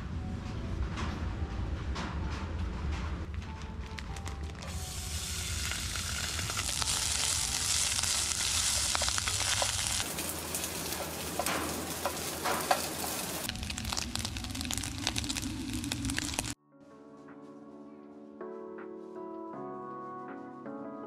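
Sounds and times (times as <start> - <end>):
rice sizzling in a frying pan: 4.6 - 16.6.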